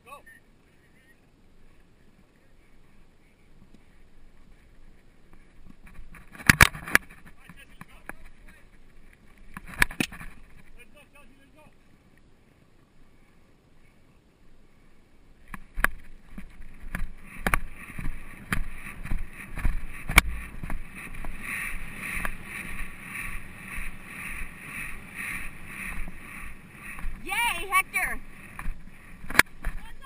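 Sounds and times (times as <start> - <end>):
horse galloping: 15.7 - 30.0.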